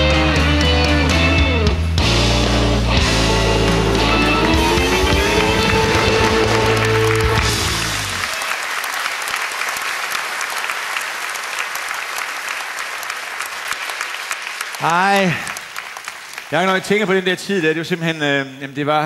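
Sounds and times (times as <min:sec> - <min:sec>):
live rock band: 0:00.0 - 0:08.3
audience applause: 0:03.2 - 0:17.4.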